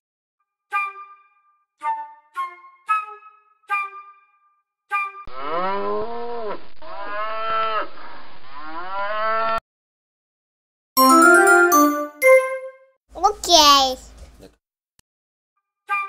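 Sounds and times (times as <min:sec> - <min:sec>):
short musical notes: 0:11.0 - 0:12.9.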